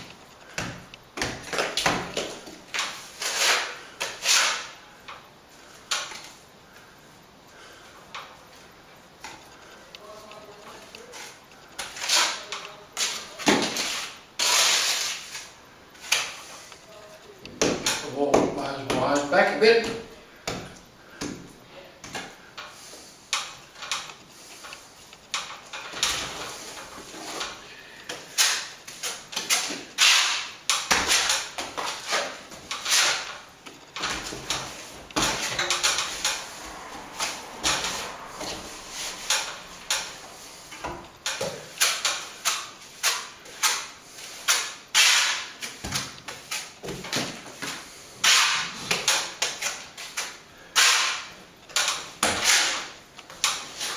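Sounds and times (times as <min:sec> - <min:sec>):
trowel scraping plaster: 0:01.5 - 0:04.8, 0:11.1 - 0:16.7, 0:25.9 - 0:36.6, 0:37.2 - 0:46.8, 0:47.4 - 0:53.9.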